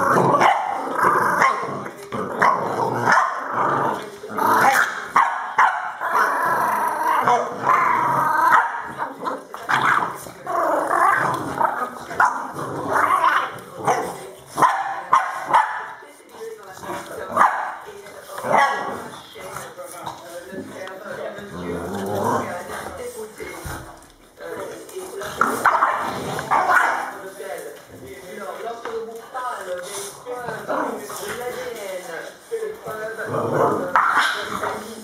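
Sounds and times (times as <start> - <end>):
puppy growling and barking: 0.0 - 15.5.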